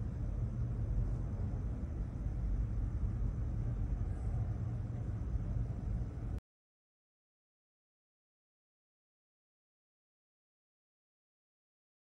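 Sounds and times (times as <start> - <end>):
low steady rumble: 0.0 - 6.4.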